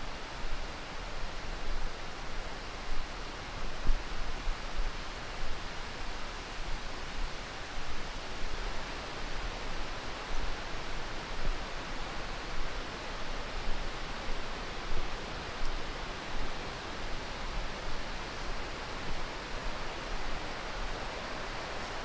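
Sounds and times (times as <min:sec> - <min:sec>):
soft footfalls on path: 0:09.7 - 0:22.0.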